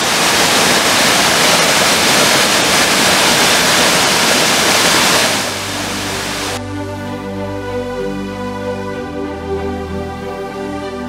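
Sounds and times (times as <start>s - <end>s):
waterfall splashing into pool: 0.0s - 6.6s.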